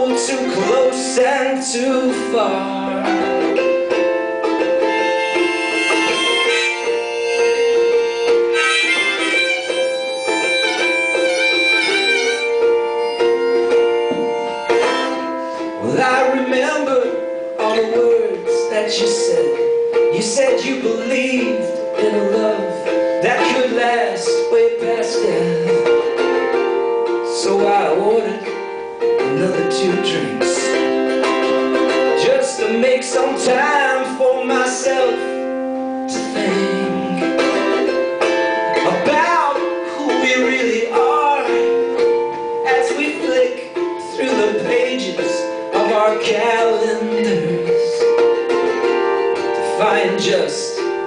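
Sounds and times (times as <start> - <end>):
man singing: 0.0 - 3.8, 14.0 - 26.4, 27.2 - 31.0, 31.8 - 38.1, 38.7 - 48.5, 49.4 - 51.0
harmonica melody: 0.0 - 51.0
strummed ukulele: 0.0 - 51.0.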